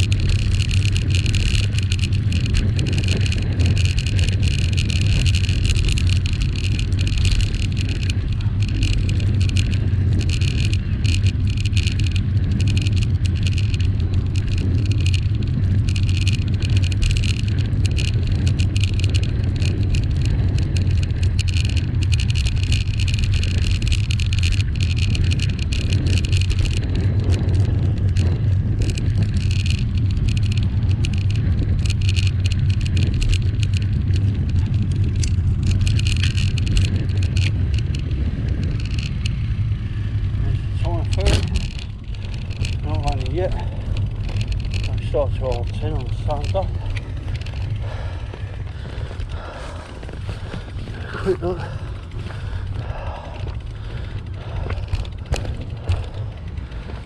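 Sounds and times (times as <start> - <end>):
road noise hiss: 0.0 - 57.0
wind rumble on microphone: 0.0 - 57.0.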